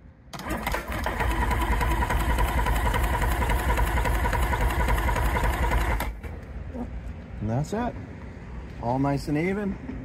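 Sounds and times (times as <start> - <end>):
outboard motor cranking over: 0.4 - 6.2.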